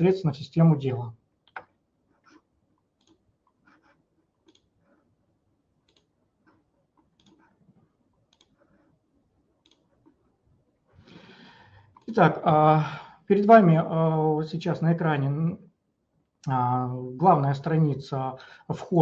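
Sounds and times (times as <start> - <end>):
faint computer mouse clicks: 4.4 - 4.7, 5.9 - 6.1, 7.2 - 7.4, 8.3 - 8.6, 9.6 - 9.9.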